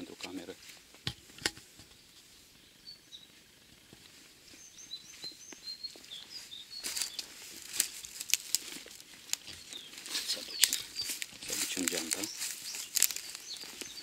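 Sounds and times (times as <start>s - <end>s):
songbird chirping: 0.0s - 14.0s
twigs snapping underfoot: 6.8s - 14.0s.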